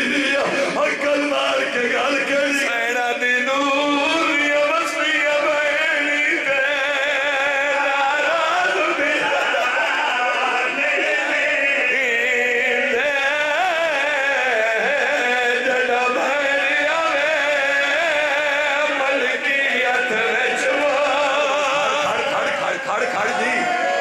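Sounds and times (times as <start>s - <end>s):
men singing over loudspeakers: 0.0s - 24.0s.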